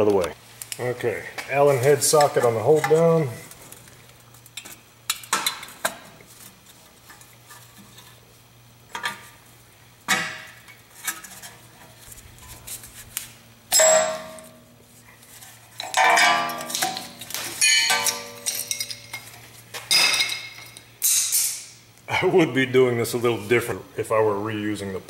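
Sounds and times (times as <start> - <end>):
ratchet and socket metal clanks: 15.8 - 19.3
ringing metal rattle: 15.8 - 19.3.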